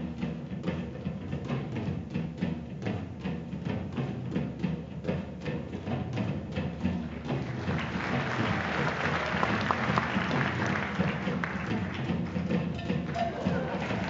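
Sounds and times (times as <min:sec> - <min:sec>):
background music: 0:00.0 - 0:14.0
audience applauding: 0:07.3 - 0:14.0.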